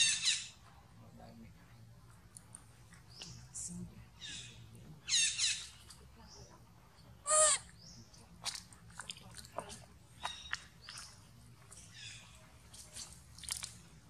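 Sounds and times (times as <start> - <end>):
high-pitched animal calls: 7.2 - 7.7.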